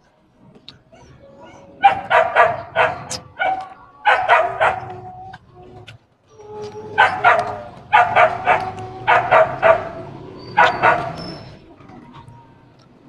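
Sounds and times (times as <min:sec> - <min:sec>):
dog barking: 0:01.8 - 0:05.1, 0:06.9 - 0:11.6.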